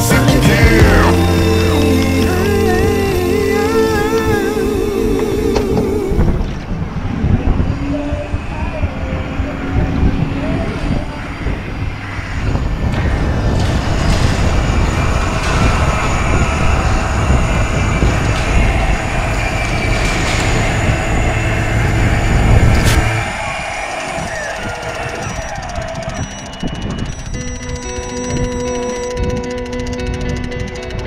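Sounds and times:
water noise: 0.7s - 27.4s
wind: 2.6s - 31.0s
fishing reel motor whining: 13.6s - 31.0s.

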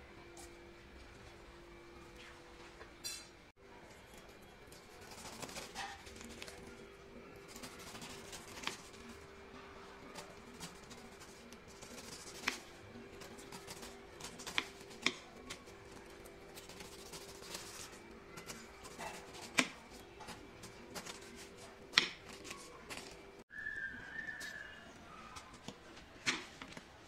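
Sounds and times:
knife scraping through pineapple skin: 4.7s - 6.7s, 7.4s - 9.3s, 10.1s - 23.2s.

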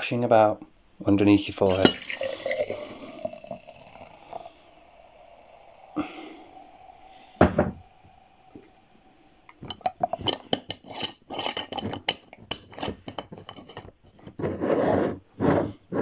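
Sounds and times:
liquid pouring into glass jar: 1.5s - 12.8s.

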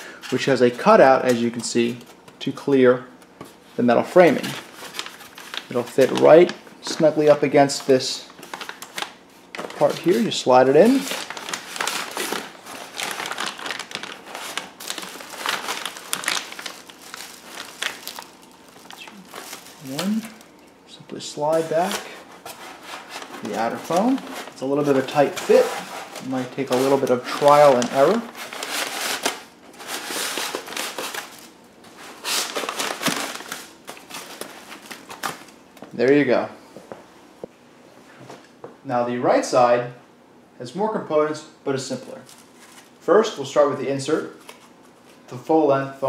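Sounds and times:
plastic bag crinkling: 4.2s - 35.9s
foam scraping against plastic bag: 21.5s - 29.2s.

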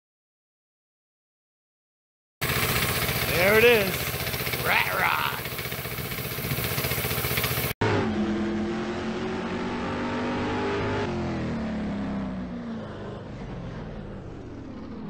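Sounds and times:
car engine running: 2.4s - 9.8s
engine with falling pitch: 2.4s - 15.0s.

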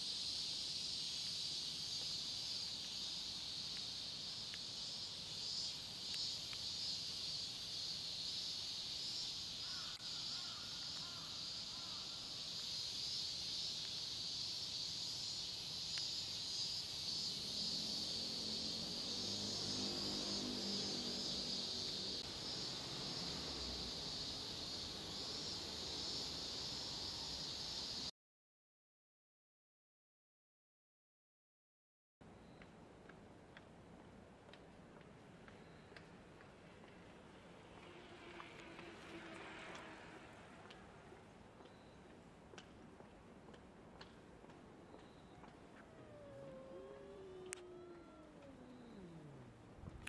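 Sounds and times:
high-pitched insect chorus: 0.0s - 28.1s
lower pitched sound: 45.8s - 50.0s.

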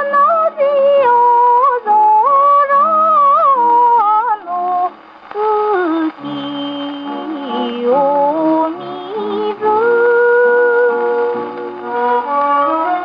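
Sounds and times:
gramophone playing orchestral song: 5.7s - 13.0s.

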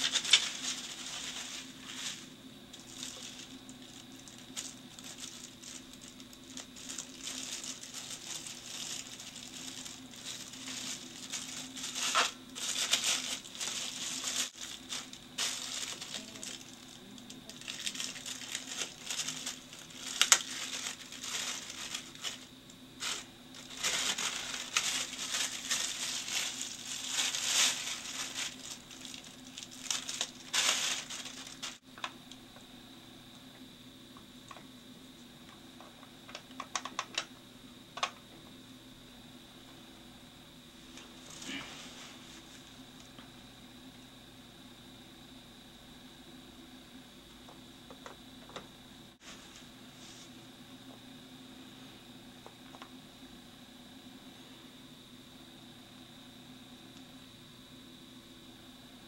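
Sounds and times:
bubble wrap and plastic bag crinkling: 0.0s - 31.9s, 40.9s - 43.2s
faint steady hum: 0.0s - 59.0s.

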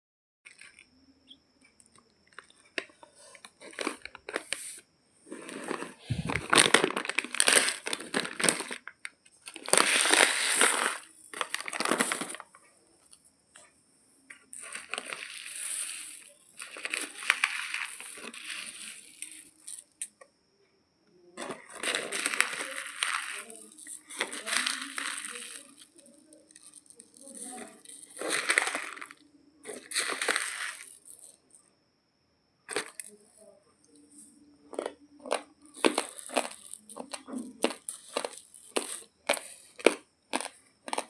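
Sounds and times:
plastic bag crackling: 2.3s - 12.6s, 14.5s - 20.1s, 21.4s - 31.4s, 35.8s - 39.6s.

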